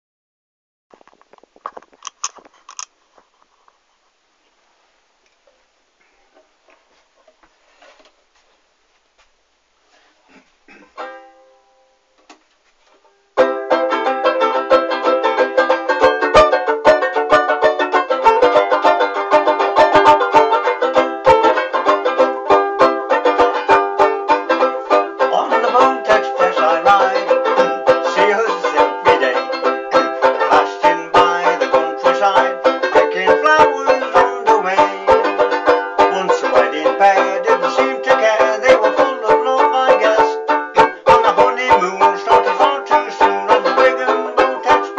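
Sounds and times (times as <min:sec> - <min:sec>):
banjo ukulele strumming: 0:10.9 - 0:12.0, 0:13.3 - 0:44.9.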